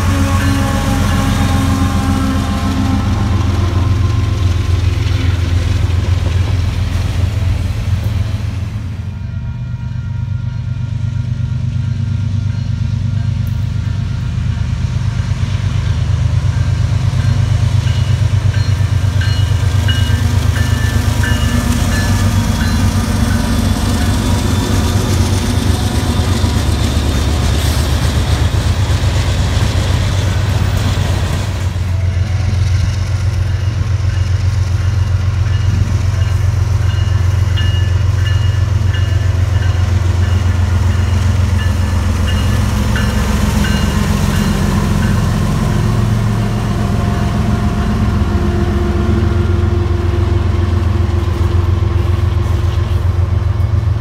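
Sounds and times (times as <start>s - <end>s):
freight train rumbling: 0.0s - 54.0s.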